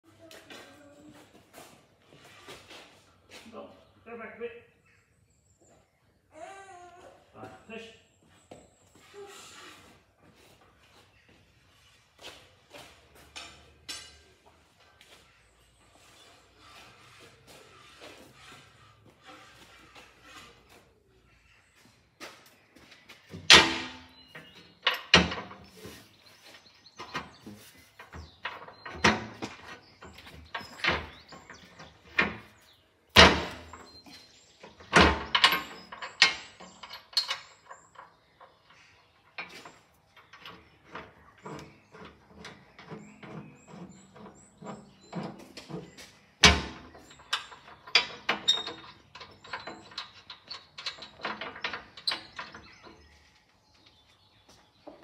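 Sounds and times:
metal knocks and clanks: 23.2s - 26.3s, 26.9s - 53.2s.

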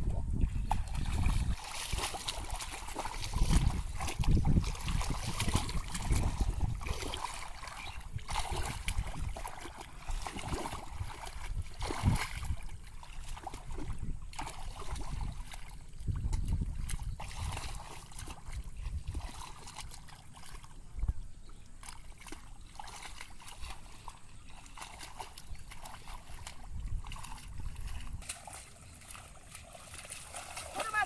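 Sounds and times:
muddy water sloshing: 0.0s - 31.0s
wet squelches: 0.3s - 31.0s.

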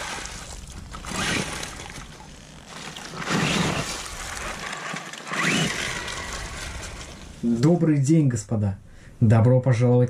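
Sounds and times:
rc truck splashing through mud: 0.0s - 7.2s.

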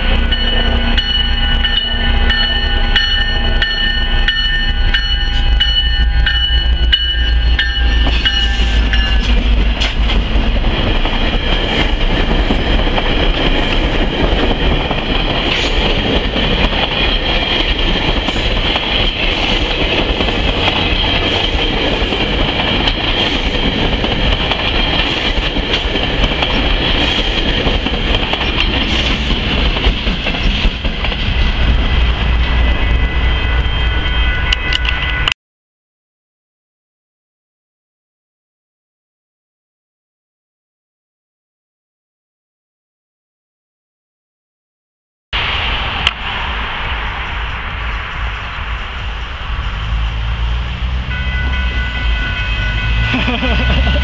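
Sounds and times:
train rushing past: 0.0s - 35.3s, 45.4s - 54.0s
level crossing bells ringing: 0.1s - 9.3s, 51.0s - 54.0s.

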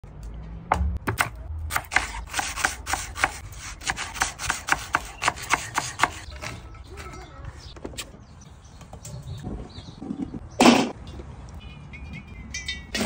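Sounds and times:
knife chopping on wooden board: 0.7s - 6.3s.

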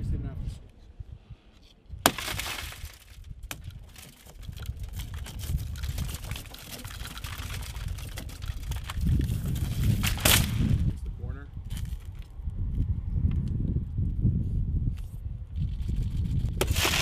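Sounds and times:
car window shattering: 2.0s - 3.1s
broken glass crackling and trickling: 3.8s - 9.1s.

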